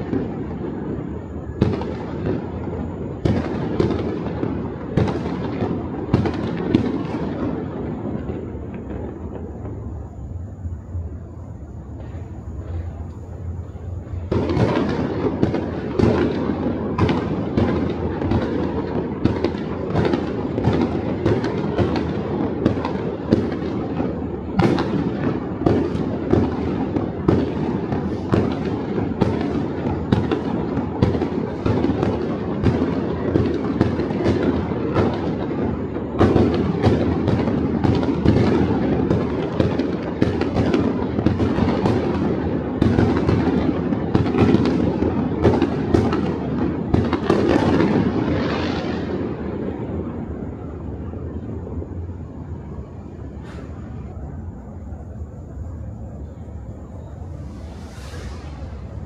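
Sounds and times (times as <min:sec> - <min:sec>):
fireworks and firecrackers bangs: 0:00.0 - 0:59.0.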